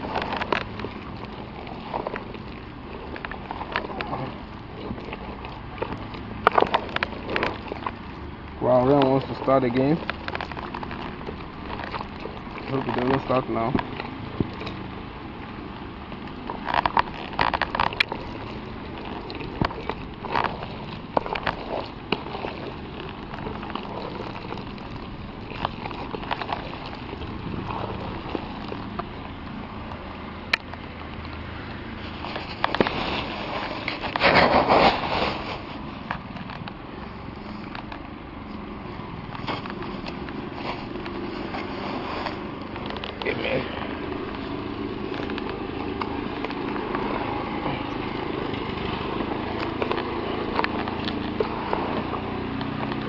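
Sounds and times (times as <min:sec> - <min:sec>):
feed meal crackling and rustling: 0:00.0 - 0:53.0.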